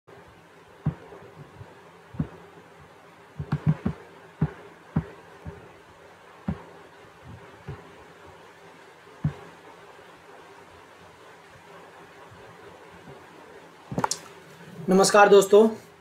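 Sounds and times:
faint electrical hum: 0.1 - 16.0
soft low thumps: 0.8 - 10.5.

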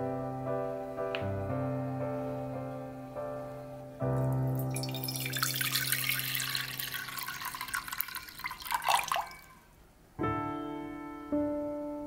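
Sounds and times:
piano music: 0.0 - 9.5, 10.2 - 12.0
water pouring into a pot: 4.6 - 9.7.

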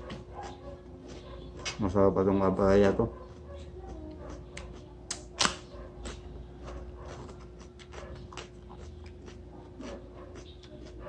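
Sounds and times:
crunching bites and chewing: 3.3 - 11.0.

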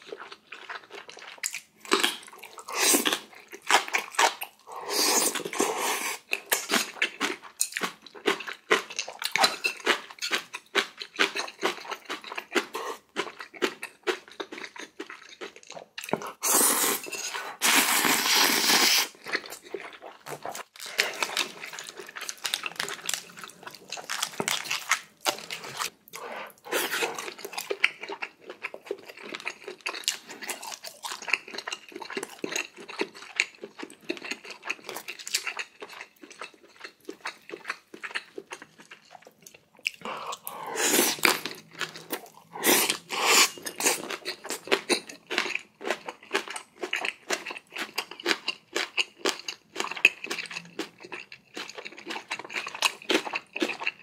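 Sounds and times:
wet chewing and crunching: 0.0 - 54.0.

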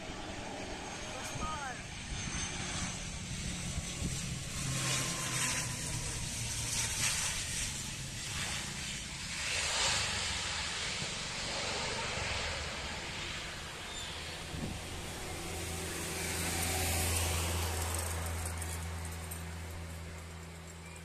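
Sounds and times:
turboprop engines humming: 0.0 - 21.0
wind on microphone: 3.6 - 5.0, 14.3 - 17.1.

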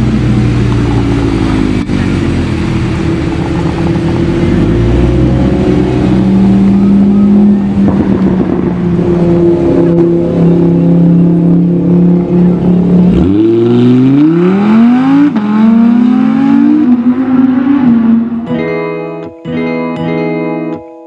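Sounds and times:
sports car engine revving: 0.0 - 18.4.

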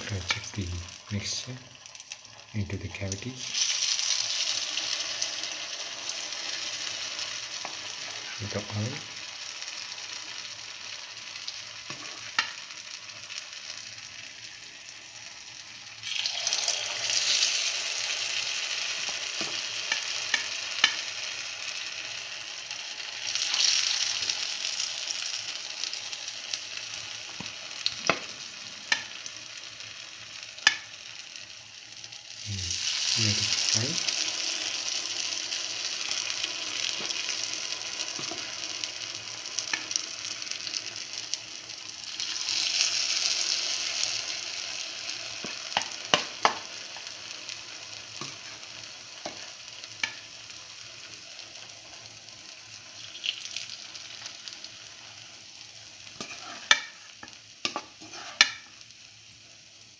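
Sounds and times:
hot oil sizzling: 0.0 - 59.9
batter popping in oil: 45.3 - 47.1, 53.0 - 54.3.

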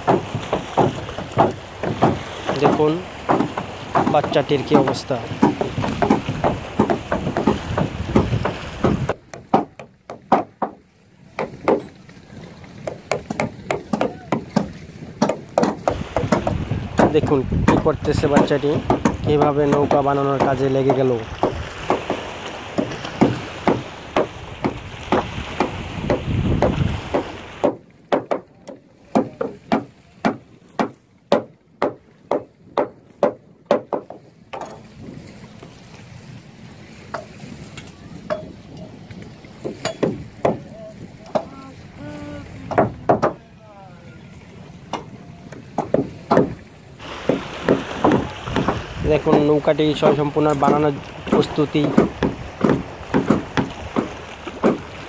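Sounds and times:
hammer knocking on wood: 0.0 - 10.8, 11.4 - 11.9, 12.8 - 22.2, 22.8 - 34.8, 39.6 - 40.6, 42.7 - 43.4, 44.9 - 46.6, 47.3 - 54.8
wind rumble on microphone: 5.2 - 9.3, 15.8 - 22.2, 24.4 - 27.6, 34.5 - 43.2, 48.0 - 55.0
hammer tapping staples into wood: 12.9 - 17.8, 22.8 - 28.4, 50.6 - 54.8.

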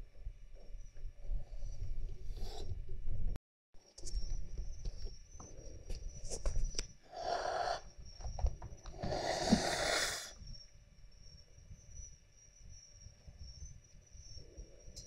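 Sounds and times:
cat hissing: 7.1 - 7.9, 8.9 - 10.4.

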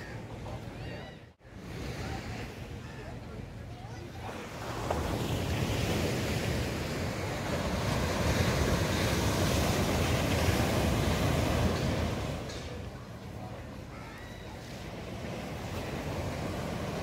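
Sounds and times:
waves breaking on beach: 3.8 - 17.0.

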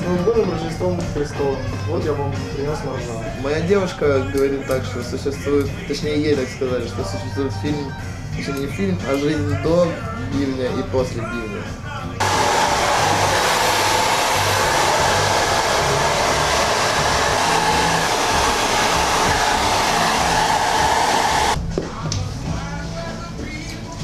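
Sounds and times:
hair dryer running: 12.2 - 21.6.

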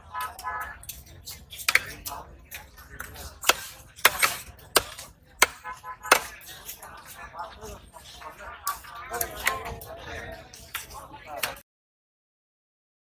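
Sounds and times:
faint voices: 0.0 - 11.6
cleaver chopping fish on wood: 3.4 - 6.4.

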